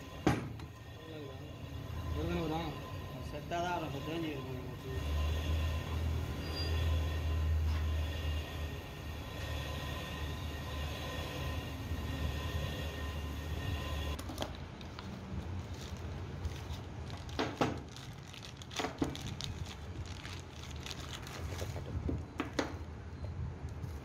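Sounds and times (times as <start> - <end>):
faint steady tones: 0.0 - 14.2
low mechanical hum: 0.0 - 24.0
plastic packet crinkling: 14.2 - 22.0.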